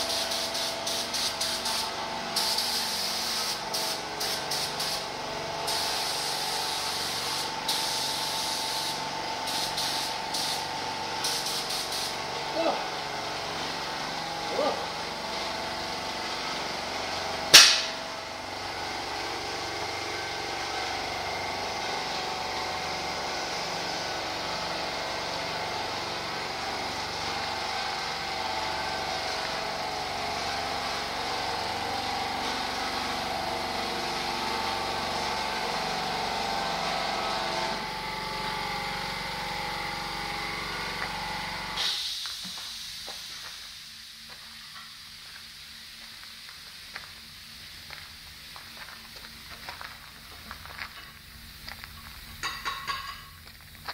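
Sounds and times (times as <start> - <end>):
sharp click: 17.6 - 18.0.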